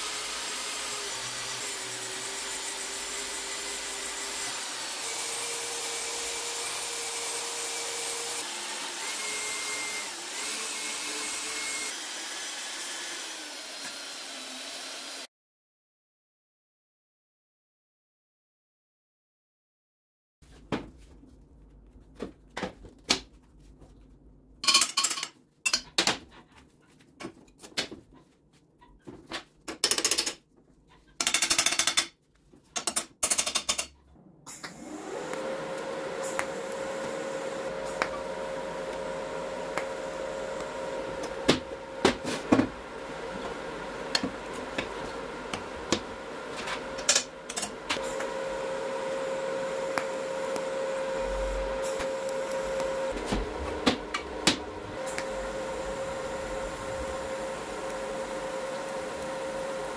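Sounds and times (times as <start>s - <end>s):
electric motor running: 34.7s - 42.1s, 42.7s - 59.9s.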